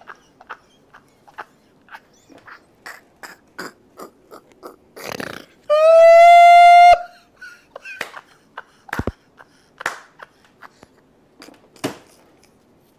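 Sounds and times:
man's high-pitched laughing squeal: 5.7 - 7.7.

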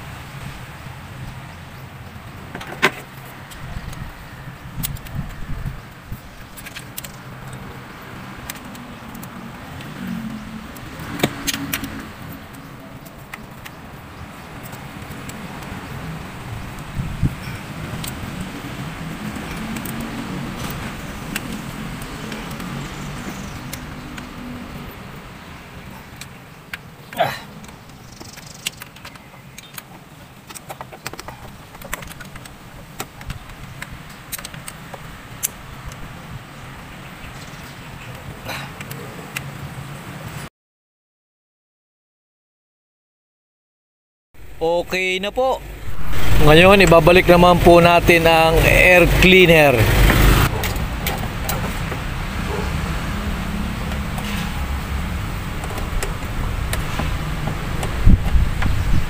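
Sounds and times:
clicks of plastic fasteners: 6.5 - 7.6, 26.1 - 36.0
low hum: 44.4 - 50.8.

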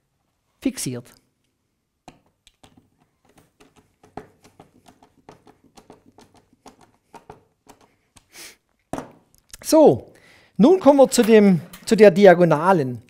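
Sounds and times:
screwdriver clicks and taps: 2.0 - 8.3.

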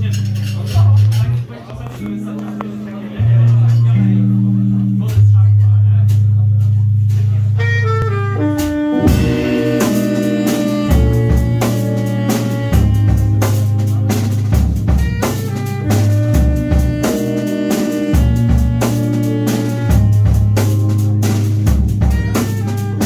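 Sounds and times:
drums steady beat: 0.0 - 23.0
live band playing instrumental: 0.0 - 23.0
sustained low bass: 0.0 - 23.0
descending run of notes: 8.8 - 14.1.

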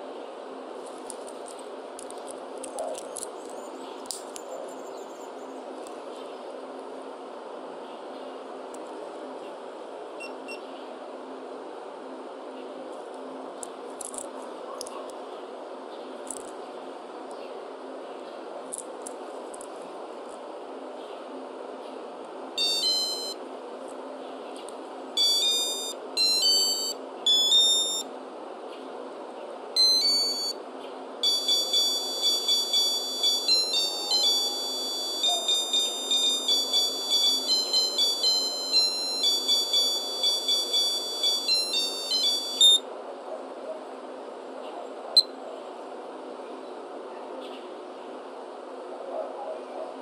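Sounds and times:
digital watch buzzer melody: 22.6 - 23.4, 25.2 - 28.0, 29.8 - 30.6, 31.2 - 42.8
short electronic beep: 22.6 - 23.4, 25.2 - 28.0, 29.8 - 30.6, 31.2 - 42.8.

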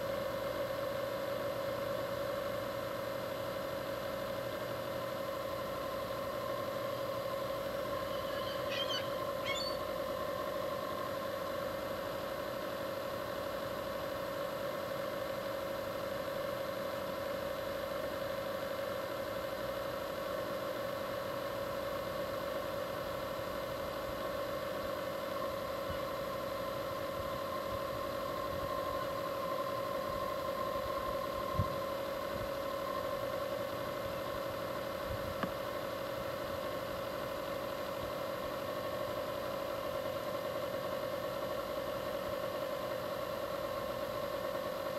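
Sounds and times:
machine hum: 0.0 - 15.4, 23.1 - 44.9
short bird call: 8.0 - 9.9.

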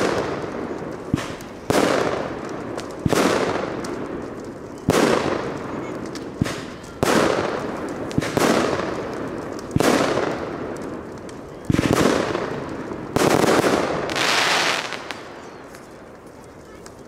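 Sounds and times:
firework bangs: 0.0 - 17.0
firework hiss: 11.7 - 16.3.

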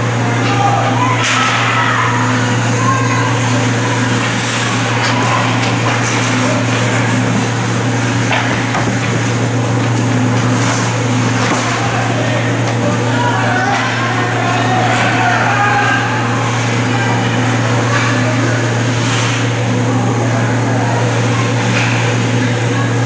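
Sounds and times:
steady low hum: 0.0 - 23.0
hockey sticks and puck clacking: 3.6 - 12.0.

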